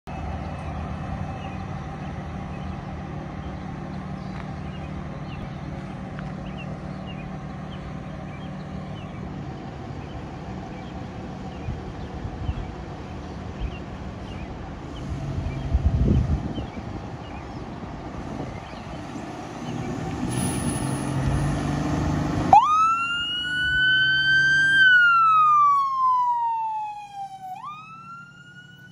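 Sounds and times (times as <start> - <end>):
diesel engine idling: 0.1 - 20.2
small birds chirping: 0.1 - 20.2.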